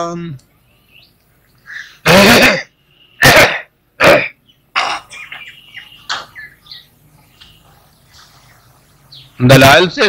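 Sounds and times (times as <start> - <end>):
faint bird chirps: 0.4 - 2.1, 2.7 - 3.3, 4.3 - 10.0
man coughing: 2.0 - 5.4
throat clearing: 2.0 - 5.4.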